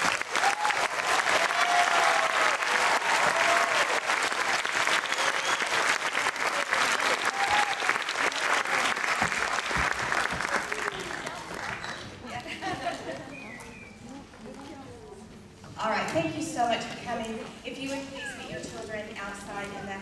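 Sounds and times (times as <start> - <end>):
audience applauding: 0.0 - 13.9
faint voices: 10.2 - 20.0.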